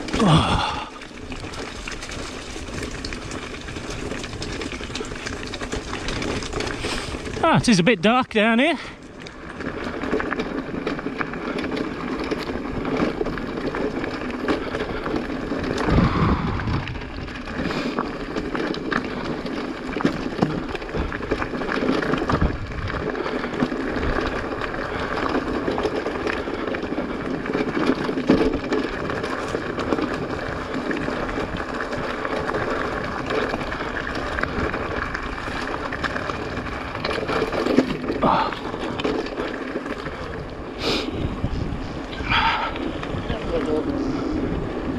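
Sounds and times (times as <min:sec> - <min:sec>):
bike rattling: 0:00.0 - 0:44.9
bike tyres running over stones: 0:00.0 - 0:44.9
wind noise on microphone: 0:09.6 - 0:19.5, 0:20.1 - 0:44.9.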